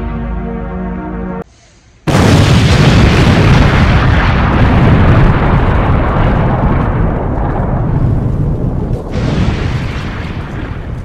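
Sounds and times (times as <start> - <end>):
wind buffeting microphone: 2.9 - 11.0.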